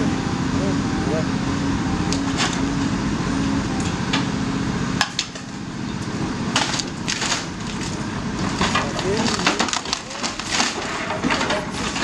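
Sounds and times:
excavator diesel engine under load: 0.0s - 12.0s
masonry and timber cracking: 5.0s - 12.0s.

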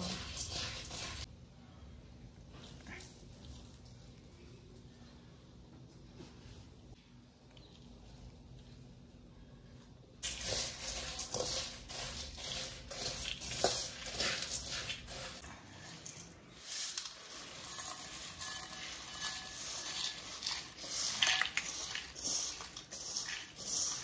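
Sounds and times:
metal spoon scraping a pan: 0.0s - 1.3s, 10.2s - 24.0s
puffed rice rustling and crunching: 10.2s - 24.0s.

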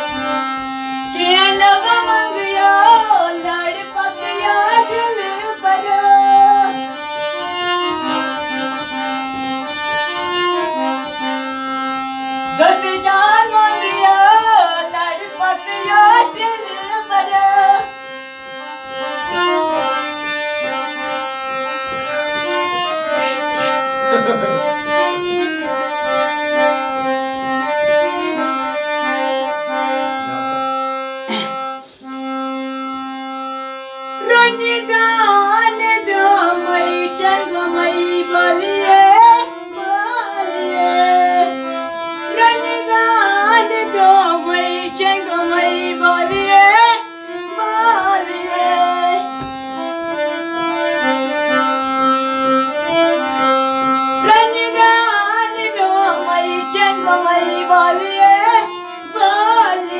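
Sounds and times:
harmonium playing chords: 0.0s - 59.9s
high voice singing: 54.2s - 59.9s.

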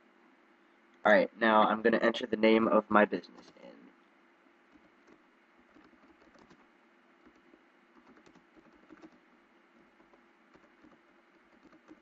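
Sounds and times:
typing on a computer keyboard: 4.7s - 9.2s, 9.8s - 12.0s.

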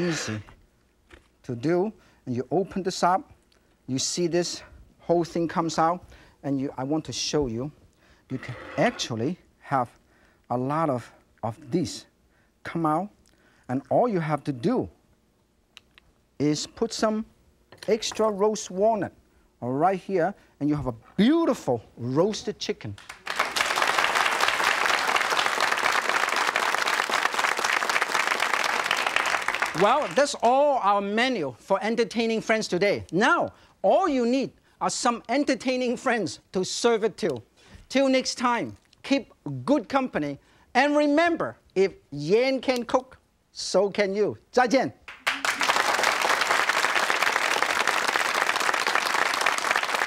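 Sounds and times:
audience applauding: 23.0s - 30.3s, 45.1s - 50.0s.

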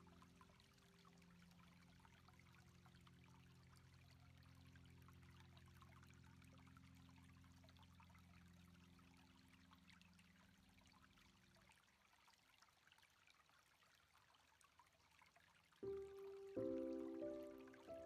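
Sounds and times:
low steady tone: 15.8s - 18.0s.

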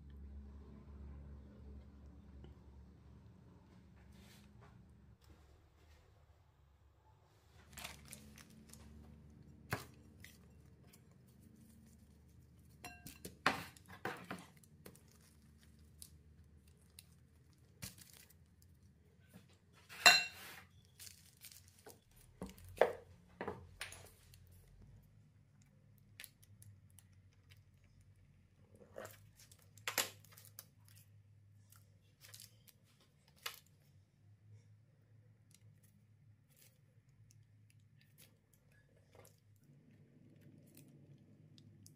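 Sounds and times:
food preparation knocks and scrapes: 12.8s - 15.0s.

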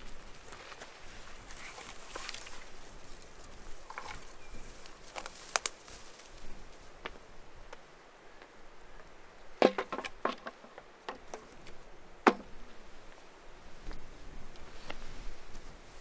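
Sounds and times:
sharp knocks and cracks: 9.6s - 11.5s, 12.2s - 12.5s.

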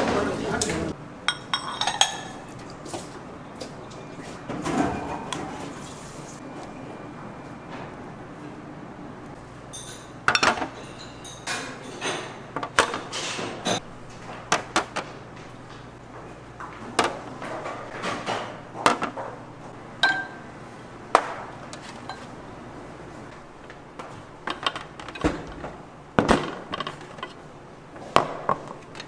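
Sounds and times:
dishes and utensils clinking: 0.7s - 2.7s, 9.7s - 13.8s, 20.0s - 20.5s
low steady hum: 18.6s - 29.0s.

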